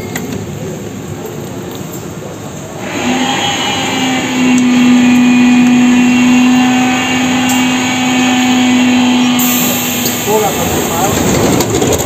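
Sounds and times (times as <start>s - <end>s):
train buzzing tone: 2.7s - 12.0s.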